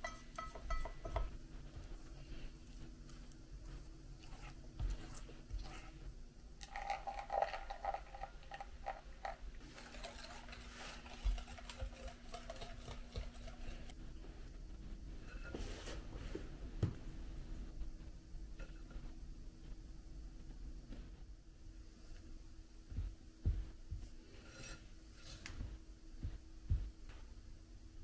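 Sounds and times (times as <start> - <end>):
utensil scraping glass bowl: 9.6 - 13.9, 24.4 - 25.4.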